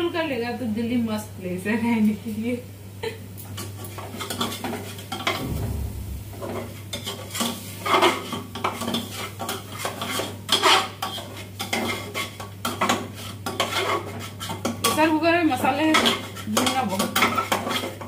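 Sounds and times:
metal spatula scraping a pot: 9.8 - 14.7.

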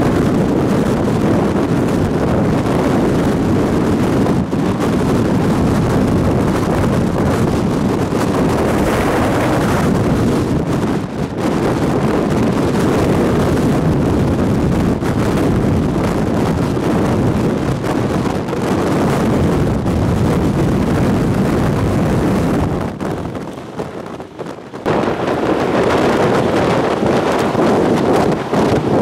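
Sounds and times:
strong wind buffeting microphone: 0.0 - 29.0.

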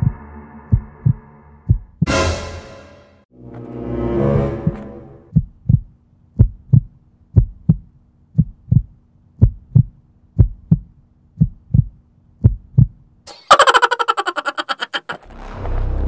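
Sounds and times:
heartbeat thumps: 0.0 - 2.1, 4.6 - 13.0.

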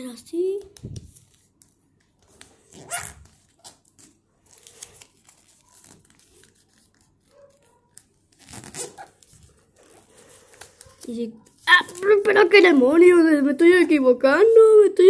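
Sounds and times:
faint paper rustling: 0.3 - 14.7
paper being creased: 1.2 - 12.5.

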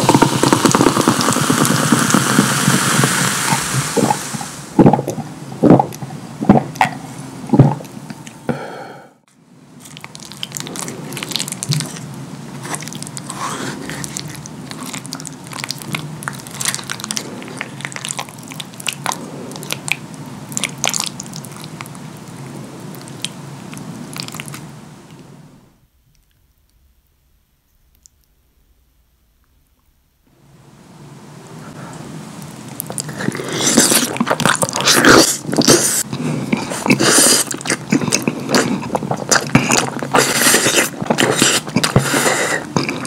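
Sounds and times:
loud gulps of swallowing: 0.0 - 8.6
fork squishing through lasagna: 9.8 - 20.0.

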